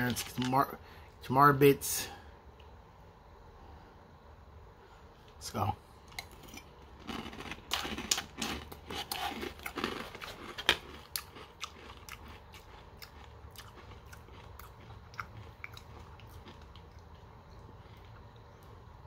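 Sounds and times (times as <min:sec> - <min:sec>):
chewing crunchy cereal: 0:00.0 - 0:00.7, 0:06.1 - 0:18.8.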